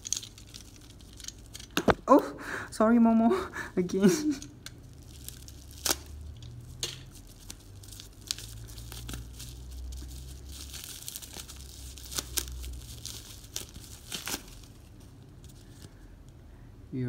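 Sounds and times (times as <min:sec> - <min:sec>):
packaging crinkling and tearing: 0:04.1 - 0:16.0
packaging snapping: 0:05.0 - 0:14.7.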